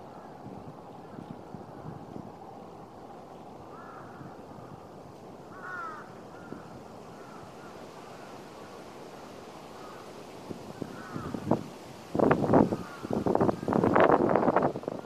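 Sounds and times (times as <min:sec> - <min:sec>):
outdoor background noise: 0:00.0 - 0:15.0
crow cawing: 0:03.7 - 0:04.8, 0:05.5 - 0:08.3, 0:09.8 - 0:10.1, 0:10.8 - 0:11.5, 0:12.7 - 0:13.8.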